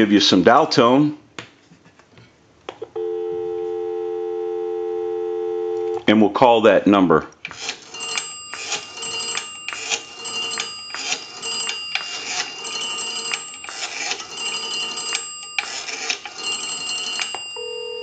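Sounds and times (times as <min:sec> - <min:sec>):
rotary phone dial clicking: 0:07.5 - 0:17.6.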